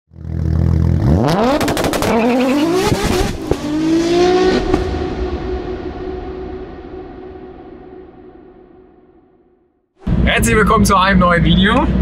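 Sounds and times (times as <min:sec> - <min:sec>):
car engine revving: 0:00.1 - 0:08.7
sharp cracking exhaust pops: 0:01.6 - 0:02.2.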